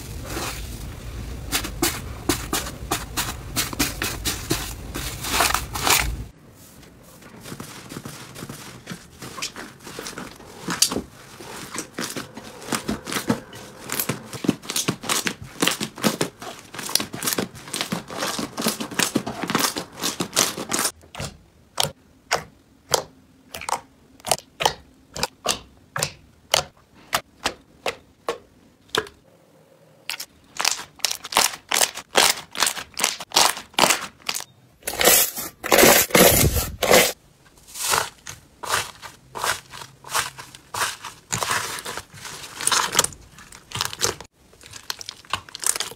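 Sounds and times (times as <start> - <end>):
slime crackling and popping: 40.2 - 45.9.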